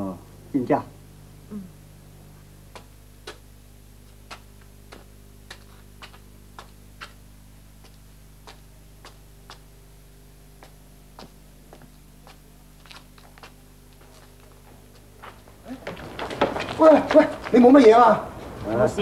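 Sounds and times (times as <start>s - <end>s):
low steady hum: 0.0s - 19.0s
footsteps on hard pavement: 4.1s - 9.8s, 10.5s - 18.8s.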